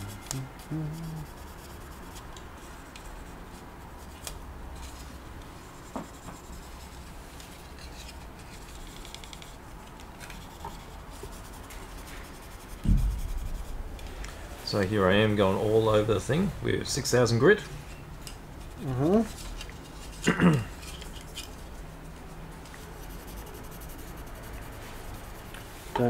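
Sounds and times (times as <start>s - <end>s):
sanding pad scratching plastic: 22.9s - 25.6s.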